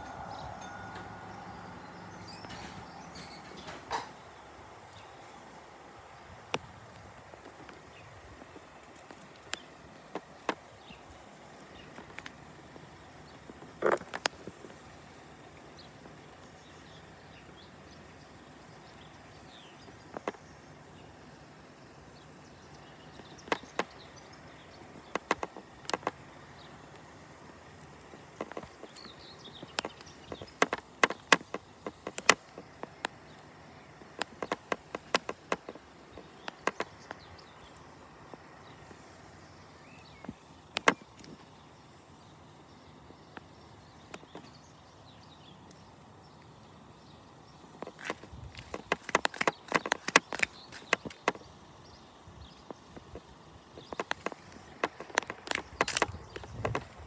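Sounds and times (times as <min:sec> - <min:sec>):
footsteps crunching on gravel: 0:27.4 - 0:39.0, 0:47.8 - 0:51.4, 0:53.8 - 0:57.0.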